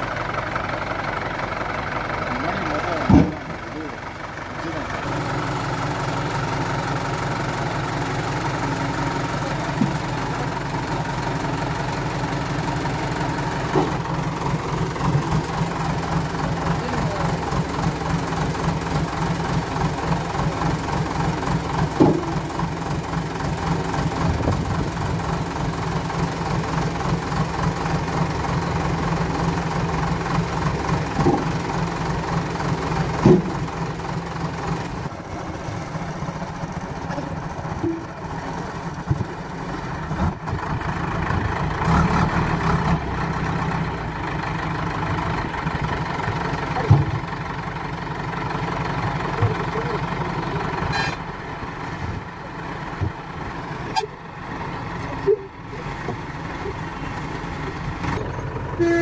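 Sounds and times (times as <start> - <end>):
diesel engine idling: 0.0 - 59.0
logs knocking into steel bucket: 3.0 - 3.5, 9.7 - 10.1, 13.6 - 14.1, 21.8 - 22.6, 31.0 - 31.8, 33.0 - 33.7, 46.8 - 47.3.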